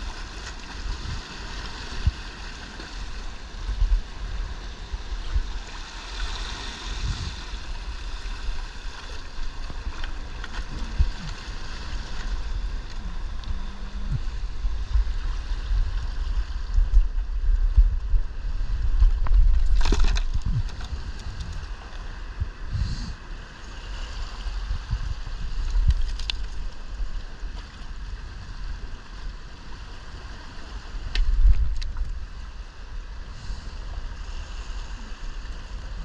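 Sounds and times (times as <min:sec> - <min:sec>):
seawater washing over rocks: 0:00.0 - 0:22.4
heavy low rumble: 0:09.4 - 0:23.2.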